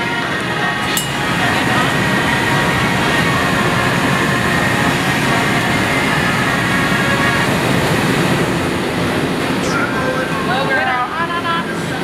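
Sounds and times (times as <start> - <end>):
gas burners roaring: 0.0 - 12.0
faint high tone: 9.6 - 10.8.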